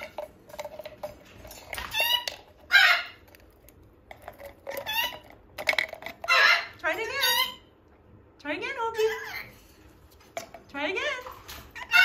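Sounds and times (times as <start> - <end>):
macaw squawking: 1.9 - 3.2, 6.2 - 7.6.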